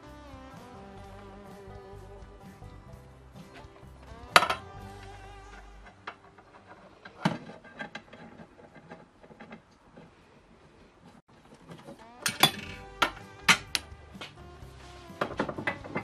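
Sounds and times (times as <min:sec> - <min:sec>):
metal fittings clinking: 0:04.1 - 0:04.8, 0:11.6 - 0:14.4.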